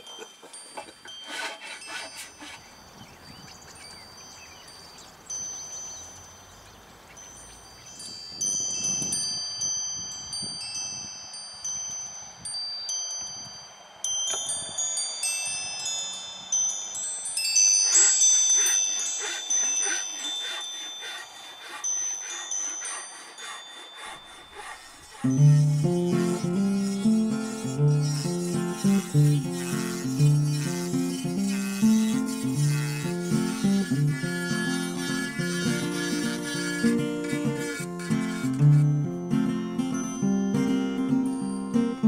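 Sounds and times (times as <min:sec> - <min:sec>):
wind chimes ringing: 0:00.0 - 0:29.3, 0:38.9 - 0:42.0.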